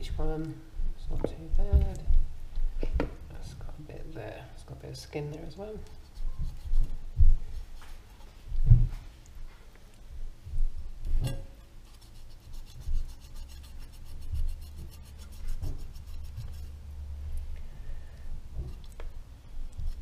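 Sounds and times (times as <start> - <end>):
rubbing and handling noise: 5.8 - 10.0, 11.1 - 17.5
knife scraping raw chicken: 11.8 - 16.8.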